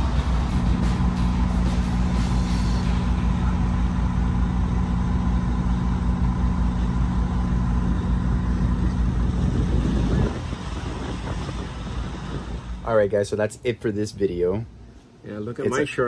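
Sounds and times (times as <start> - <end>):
boat engine drone: 0.0 - 13.0
water rushing along hull: 9.0 - 12.8.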